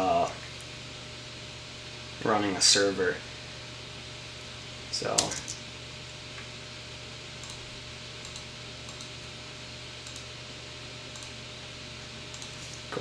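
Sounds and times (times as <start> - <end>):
computer fans whirring: 0.0 - 13.0
keyboard and mouse clicks: 8.2 - 9.1, 10.0 - 10.3, 12.3 - 12.6.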